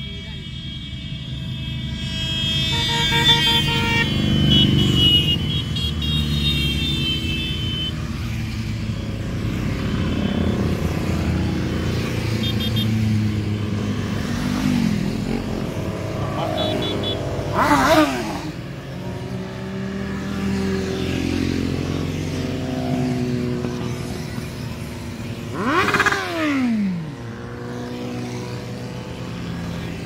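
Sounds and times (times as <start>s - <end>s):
vehicle horns honking: 0.0s - 8.0s, 12.3s - 13.0s, 16.1s - 18.2s
motorcycles riding past: 2.6s - 30.0s.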